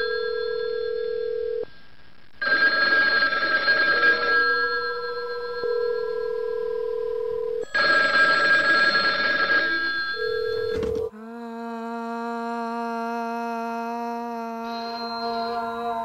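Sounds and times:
telephone ringing: 0.0 - 1.7, 2.4 - 11.1.

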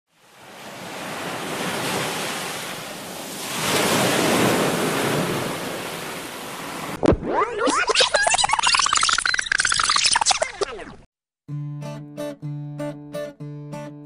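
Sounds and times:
sea waves washing: 0.1 - 9.3.

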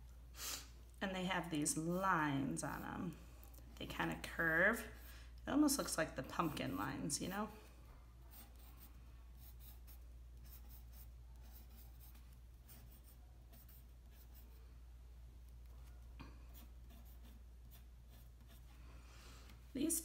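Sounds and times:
low steady hum: 0.0 - 20.0
pencil scratching on paper: 6.2 - 7.0, 8.2 - 14.6, 15.8 - 18.8.

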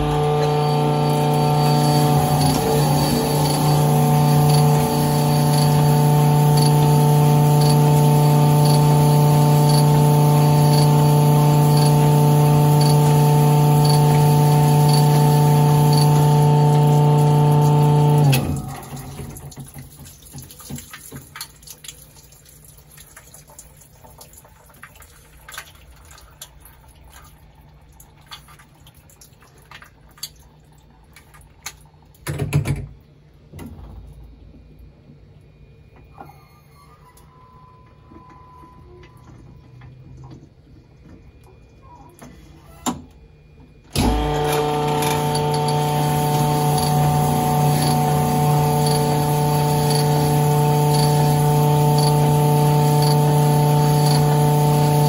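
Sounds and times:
honing machine humming: 0.0 - 18.9.

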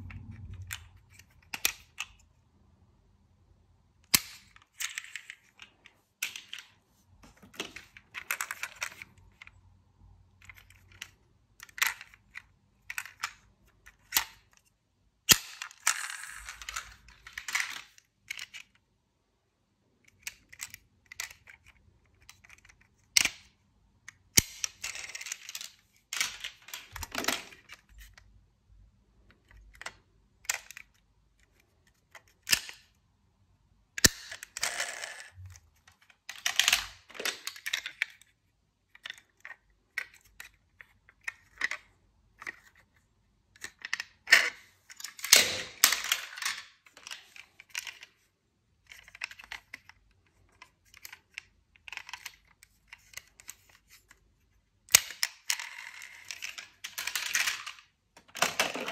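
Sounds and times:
toy cars clicking and clattering: 4.0 - 6.8, 10.3 - 14.7, 15.3 - 18.8, 20.0 - 28.3, 29.2 - 33.0, 34.0 - 42.9, 43.5 - 58.9.

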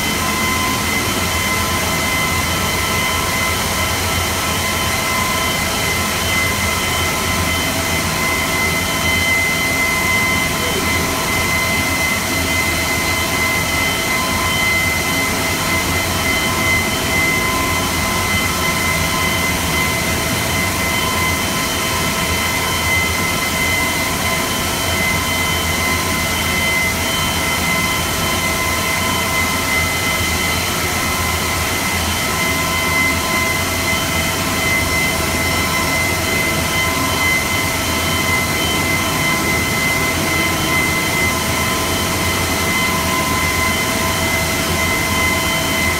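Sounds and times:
stone-cutting machine whining: 0.0 - 45.9.

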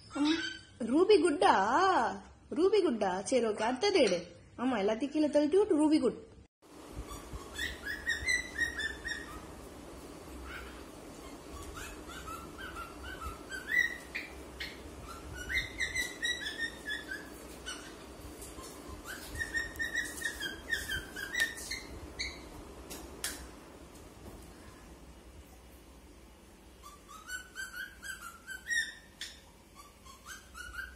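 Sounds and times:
cockatiel whistling: 7.1 - 9.5, 10.5 - 18.0, 18.6 - 22.4, 26.8 - 30.9.

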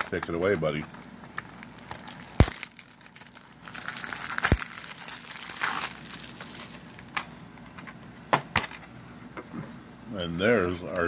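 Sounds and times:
plastic wrap snapping: 0.0 - 7.2
plastic wrap crinkling: 0.0 - 7.8.

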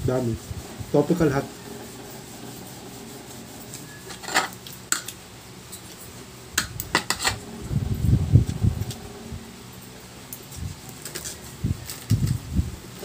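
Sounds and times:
cutlery clinking against a plate: 4.0 - 5.9.

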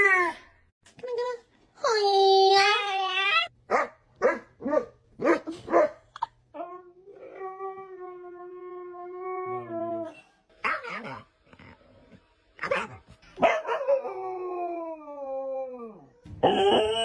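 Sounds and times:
dog barking: 3.7 - 6.1, 12.6 - 14.0
dog howling: 13.6 - 17.0.

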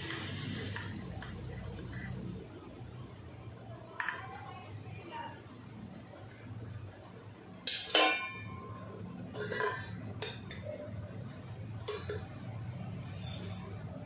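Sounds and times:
low steady hum: 0.0 - 14.0
steel vessels clinking and clanking: 7.7 - 8.6.

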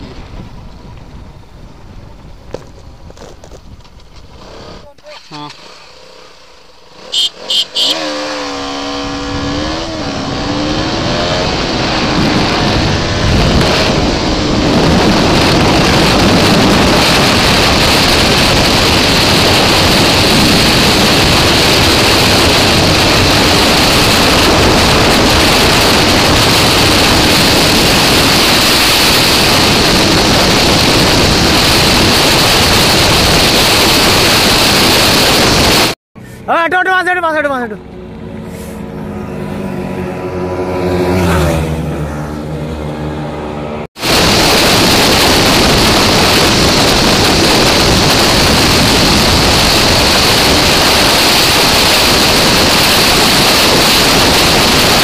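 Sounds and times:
wind rushing on microphone: 0.0 - 4.4, 8.2 - 36.0, 44.0 - 55.0
motorcycle engine revving: 4.2 - 36.4, 37.7 - 55.0.

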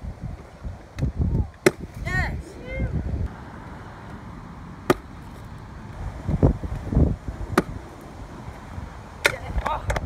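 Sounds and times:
wind on microphone: 0.0 - 3.4, 5.9 - 10.0
scooter wheels rumbling: 0.1 - 10.0
scooter clacking on concrete ramp: 9.2 - 10.0.

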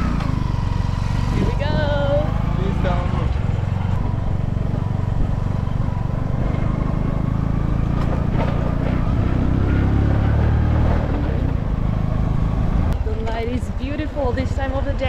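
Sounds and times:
small motorcycle engine running: 0.0 - 10.7.

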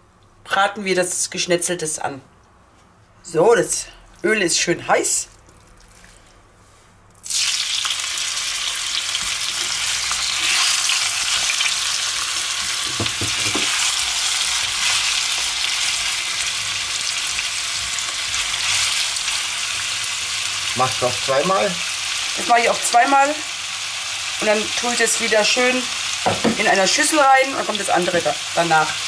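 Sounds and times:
meat sizzling in hot oil: 7.2 - 29.0.

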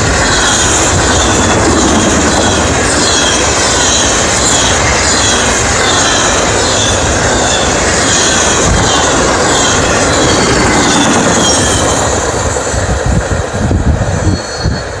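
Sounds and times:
train wheels rumbling on rails: 0.0 - 15.0
faint wheel squeal: 14.1 - 15.0.

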